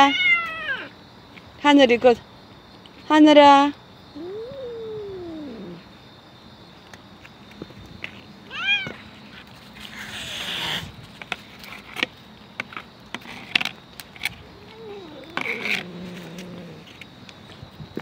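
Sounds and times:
cat meowing: 0:00.0 - 0:00.9, 0:04.2 - 0:05.8, 0:08.5 - 0:09.0, 0:14.5 - 0:16.8.

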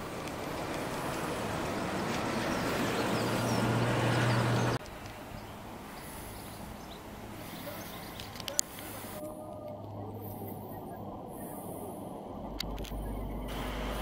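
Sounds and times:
outdoor background noise: 0:00.0 - 0:14.0
vehicle approaching: 0:00.0 - 0:14.0
low hum: 0:09.2 - 0:14.0.

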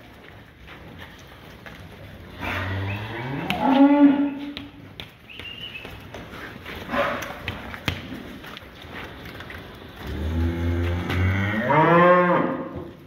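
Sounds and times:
cattle knocking and shuffling: 0:00.0 - 0:11.6
cow mooing: 0:02.4 - 0:04.4, 0:10.1 - 0:12.8.

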